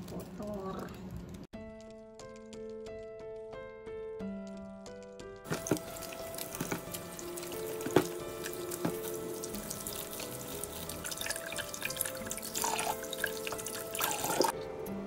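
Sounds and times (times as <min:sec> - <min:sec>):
background music with held notes: 0:01.6 - 0:15.0
knocks of produce: 0:05.5 - 0:07.0, 0:07.6 - 0:09.3
hands scrubbing vegetables: 0:05.5 - 0:14.6
tap water running into a bowl: 0:05.5 - 0:14.6
water splashing: 0:05.5 - 0:14.6.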